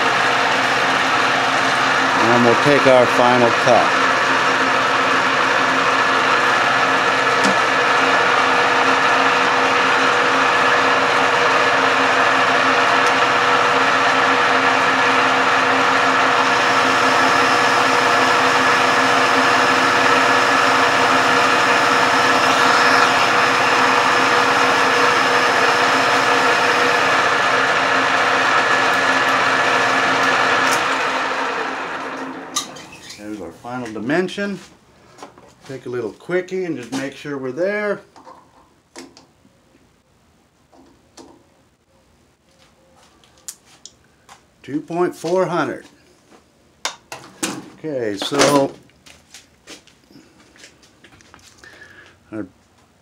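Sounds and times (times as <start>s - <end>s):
metal lathe motor and gear hum: 0.0s - 33.2s.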